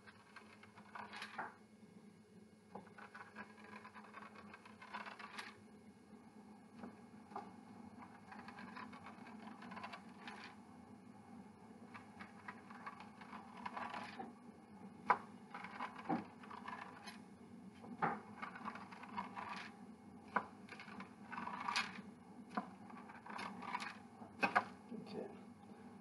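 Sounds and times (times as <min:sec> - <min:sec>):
pizza cutter scraping dough: 0:02.8 - 0:05.6, 0:08.0 - 0:10.6, 0:12.0 - 0:14.3, 0:15.1 - 0:17.2, 0:18.2 - 0:24.7.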